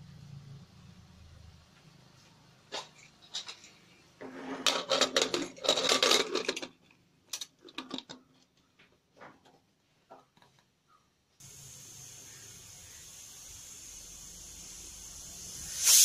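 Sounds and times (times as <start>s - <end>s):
metal lid scraping and clattering: 2.8s - 8.3s.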